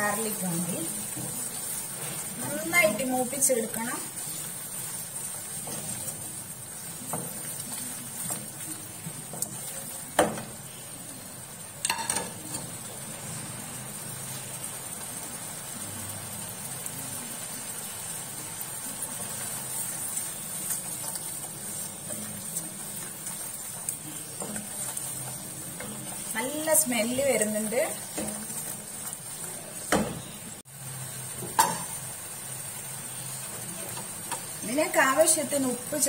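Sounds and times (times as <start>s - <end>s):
paste sizzling in hot oil: 0.0s - 36.0s
wooden spatula stirring: 0.1s - 10.6s, 19.1s - 30.0s.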